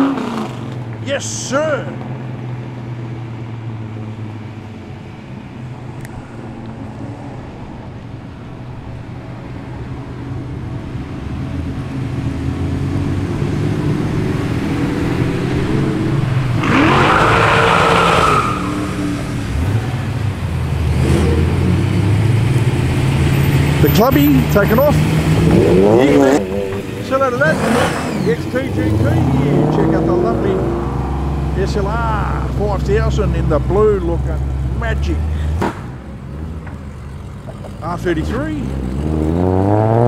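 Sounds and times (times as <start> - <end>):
car engine revving hard: 0.0 - 0.8, 11.9 - 20.2, 20.8 - 31.9, 38.0 - 40.0
car engines running: 0.0 - 40.0.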